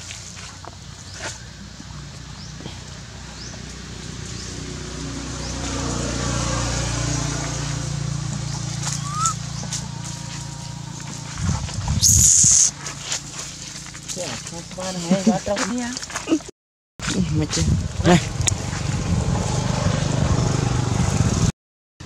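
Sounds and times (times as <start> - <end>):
low rumble: 8.2 - 12.7
monkey screaming shrilly: 9.0 - 9.5, 12.0 - 12.7.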